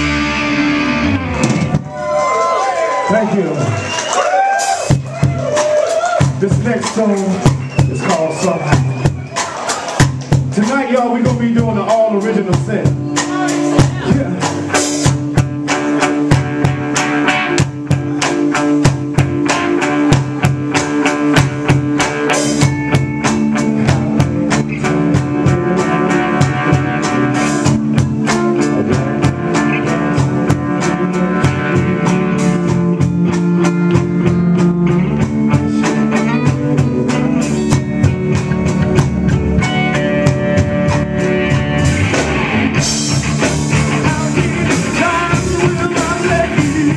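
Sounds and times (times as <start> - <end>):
drum kit steady beat: 0.0 - 46.9
electric guitars: 0.0 - 46.9.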